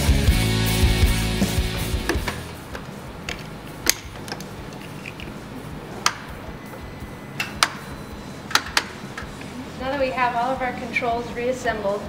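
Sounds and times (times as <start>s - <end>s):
rock background music: 0.0s - 9.4s.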